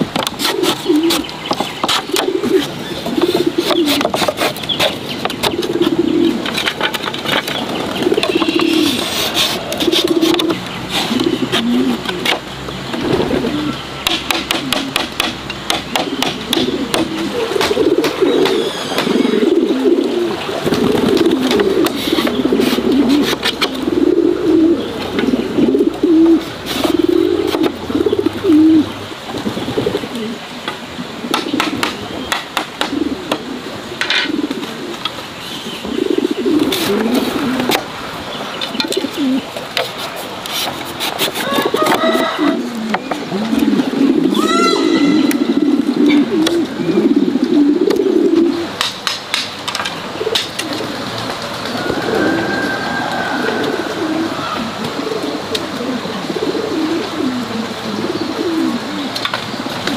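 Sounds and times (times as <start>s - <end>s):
doves cooing: 0.0s - 48.9s, 49.8s - 59.9s
bamboo slats clicking together: 14.0s - 19.1s, 48.8s - 50.7s.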